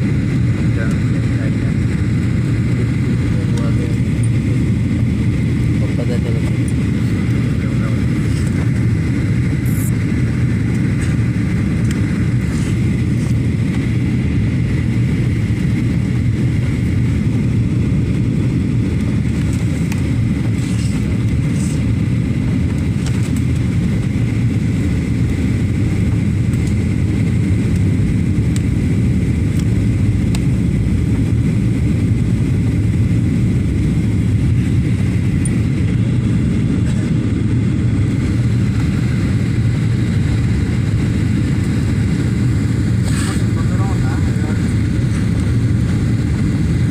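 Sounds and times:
jet engine drone: 0:00.0 - 0:46.9.

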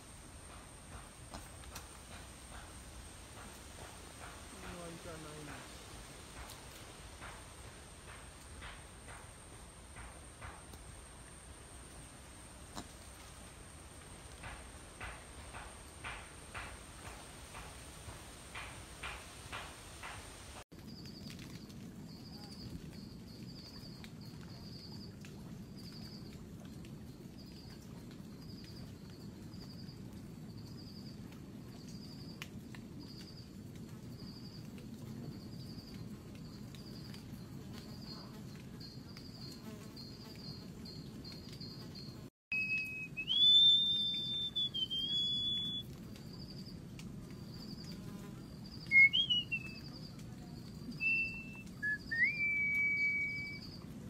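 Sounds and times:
insect chirping: 0:00.0 - 0:25.1, 0:35.3 - 0:53.9
low forest hum: 0:00.0 - 0:54.0
bird whistling: 0:42.5 - 0:45.8, 0:48.8 - 0:49.9, 0:51.0 - 0:53.7.

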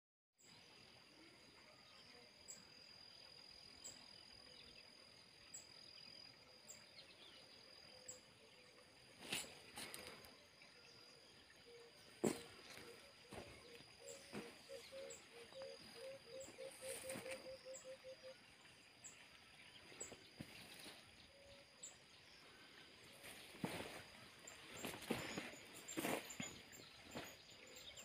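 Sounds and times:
high insect trill: 0:07.9 - 0:19.2, 0:20.0 - 0:28.0.

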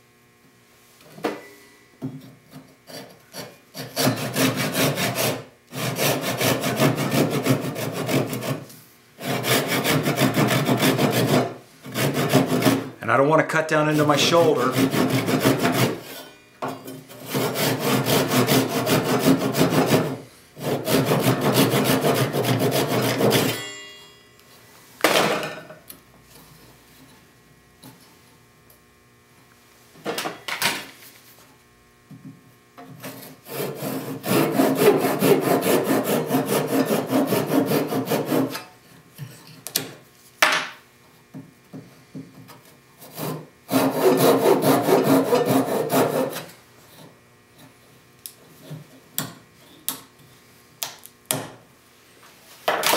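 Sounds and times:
hand saw cutting wood: 0:02.5 - 0:13.0, 0:14.0 - 0:16.3, 0:17.1 - 0:23.6, 0:32.8 - 0:38.8, 0:42.4 - 0:47.8.

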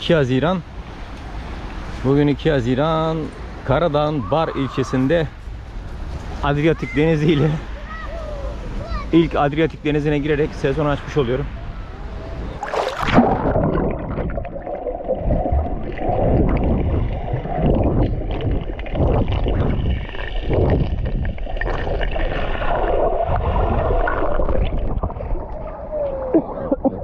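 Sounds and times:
water splashing and sloshing: 0:12.0 - 0:27.0
swimming strokes in water: 0:12.3 - 0:26.7.

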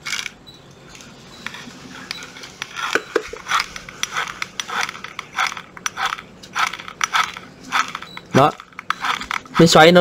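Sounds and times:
plastic clicks taps and scrapes: 0:02.0 - 0:09.6.

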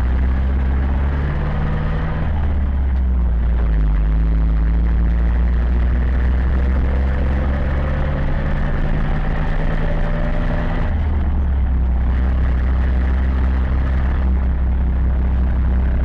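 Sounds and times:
tractor diesel engine running: 0:00.0 - 0:16.0.

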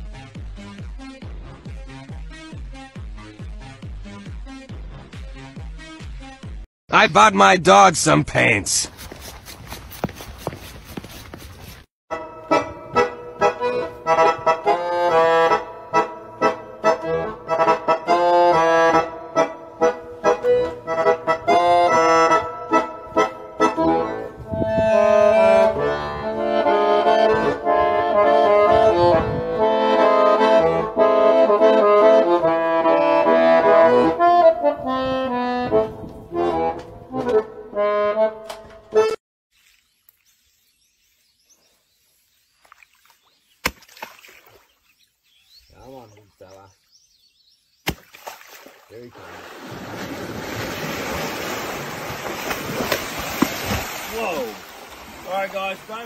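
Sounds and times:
accordion music: 0:12.1 - 0:39.2.

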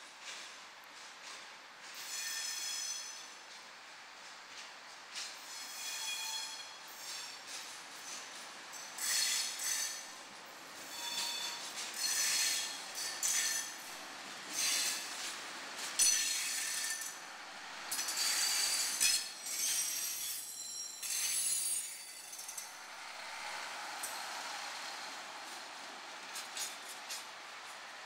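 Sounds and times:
railcar running rumble: 0:00.0 - 0:28.0
railcar wheels squealing: 0:01.9 - 0:03.5, 0:05.2 - 0:15.2, 0:15.9 - 0:17.2, 0:17.9 - 0:24.5.

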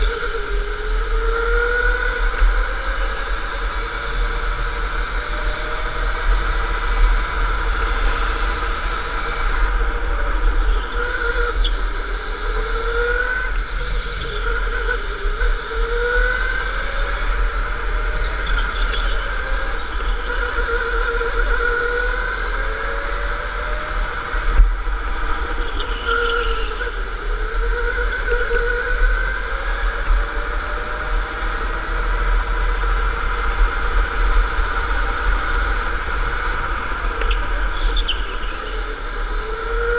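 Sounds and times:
electric go-kart motor whining: 0:00.0 - 0:39.9.

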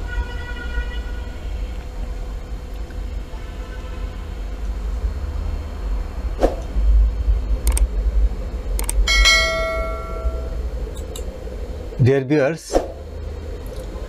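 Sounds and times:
low hum: 0:04.5 - 0:12.1
sharp clicks: 0:07.6 - 0:07.9, 0:08.8 - 0:09.1
bell ding: 0:09.1 - 0:10.6.

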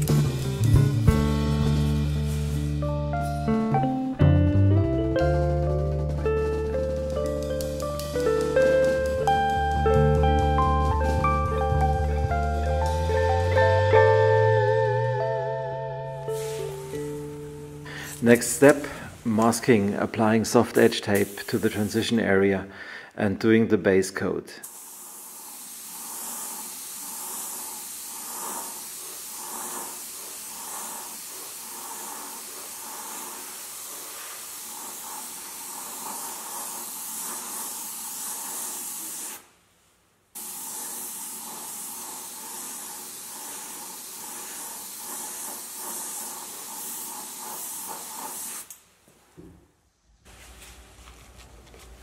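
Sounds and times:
paint spray gun hissing: 0:00.0 - 0:03.4, 0:06.4 - 0:14.2, 0:16.2 - 0:22.2, 0:24.6 - 0:39.5, 0:40.4 - 0:48.8.

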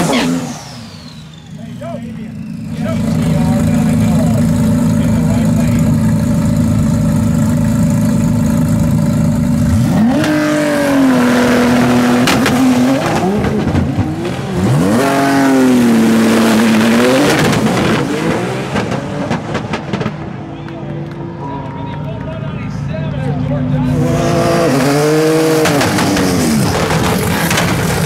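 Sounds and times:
car engine revving: 0:00.0 - 0:21.4, 0:22.7 - 0:28.0
engine crackling pops: 0:18.7 - 0:21.2, 0:25.6 - 0:28.0.

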